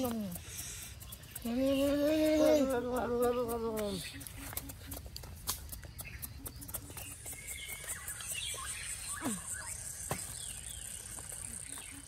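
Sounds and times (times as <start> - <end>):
small clicks and crackles: 0.0 - 6.4
bird chirps: 0.0 - 12.0
high insect buzz: 7.1 - 12.0.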